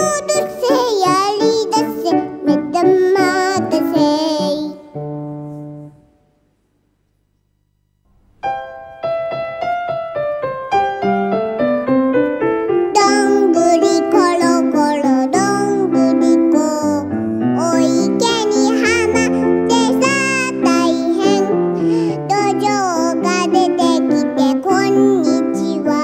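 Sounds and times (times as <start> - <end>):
girl singing: 0.0 - 5.0, 12.9 - 26.0
grand piano playing: 0.0 - 6.0, 8.2 - 26.0.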